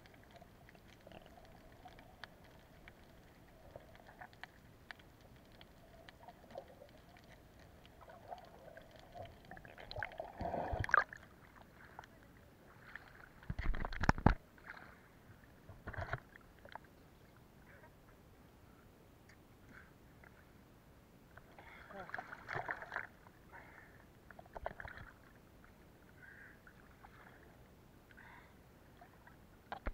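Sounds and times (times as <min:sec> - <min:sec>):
faint ticks underwater: 0:00.0 - 0:12.3, 0:28.0 - 0:29.9
water splashing and sloshing: 0:00.0 - 0:17.4, 0:21.4 - 0:29.9.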